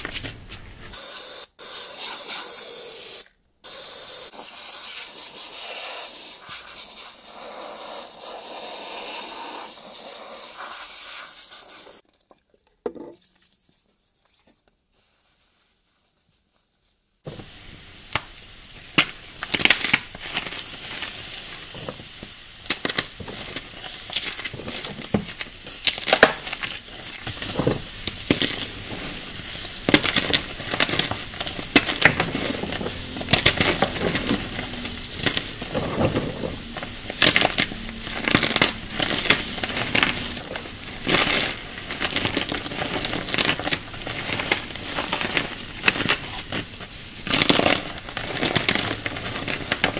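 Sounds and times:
fizzing sizzle: 17.3s - 49.9s
powder chunks crackling and crunching: 17.4s - 49.9s.

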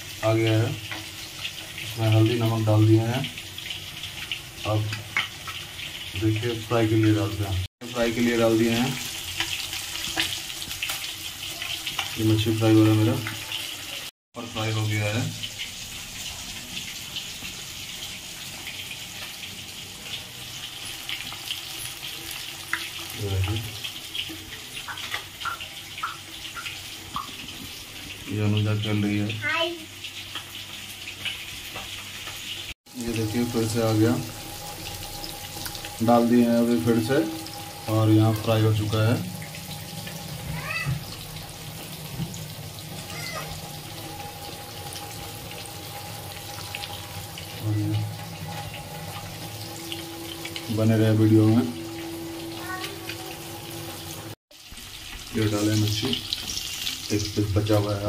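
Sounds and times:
fish sizzling in hot oil: 0.0s - 58.0s
oil crackling and popping: 3.2s - 7.1s, 8.1s - 14.1s, 15.4s - 28.2s, 29.6s - 36.0s, 53.8s - 57.8s.

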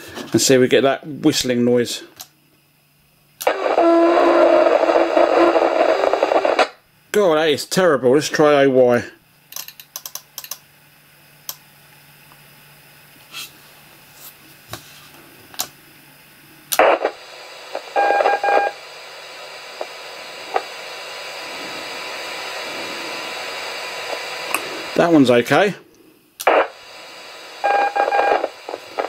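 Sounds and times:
faint high whines: 3.4s - 6.9s, 16.4s - 29.0s
radio static hiss: 3.4s - 9.0s, 16.7s - 29.0s
short radio beep: 17.8s - 18.8s, 27.6s - 28.5s.

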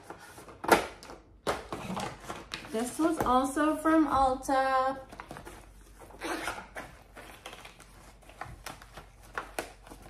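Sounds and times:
plastic pouch rustling: 5.1s - 10.0s.

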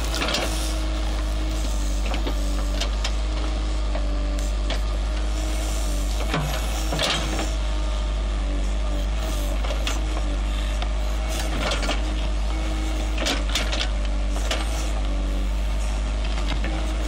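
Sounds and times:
bucket scraping through soil: 0.0s - 2.7s
hydraulic tone: 0.0s - 7.7s
diesel engine running under load: 0.0s - 17.0s.

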